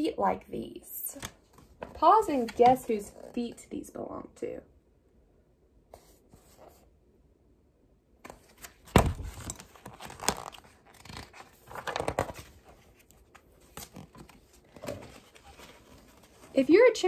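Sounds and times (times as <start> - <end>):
book pages rustling and flapping: 1.1 - 3.2, 5.9 - 6.9, 8.2 - 17.0.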